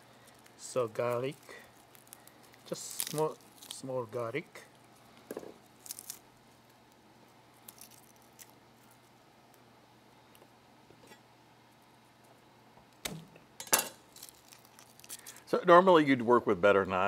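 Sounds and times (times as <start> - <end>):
garlic skins crackling: 0.0 - 9.7, 14.0 - 15.8.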